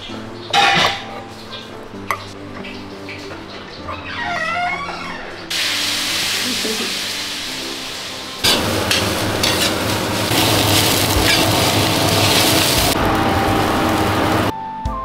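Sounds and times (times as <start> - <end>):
food sizzling in hot oil: 5.5 - 14.5.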